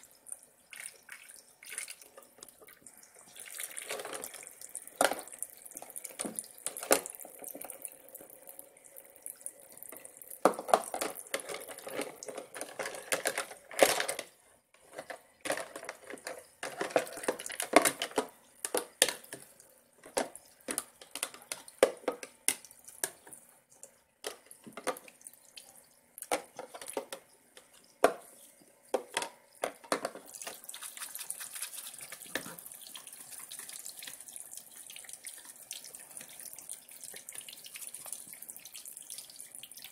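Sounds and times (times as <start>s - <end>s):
water trickling from faucet: 0.0s - 12.4s, 22.6s - 28.0s, 30.2s - 39.9s
plastic dishes clattering: 3.7s - 7.8s, 10.4s - 23.3s, 24.2s - 25.2s, 26.2s - 28.3s, 28.9s - 30.7s, 31.6s - 32.6s.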